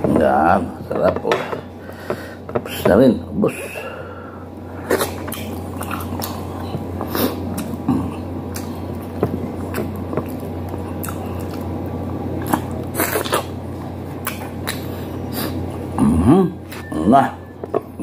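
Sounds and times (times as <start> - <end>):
person chewing food: 4.7 - 16.0.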